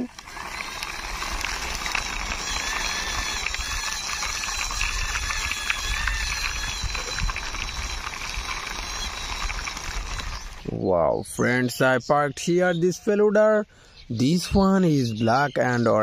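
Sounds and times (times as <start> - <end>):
plastic wheels rolling on concrete: 0.0 - 10.7.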